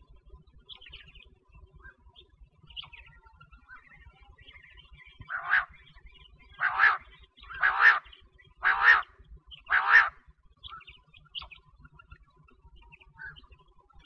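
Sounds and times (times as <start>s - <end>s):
faint chirps: 0.0s - 14.0s
quail calling: 5.2s - 5.9s, 6.6s - 10.2s.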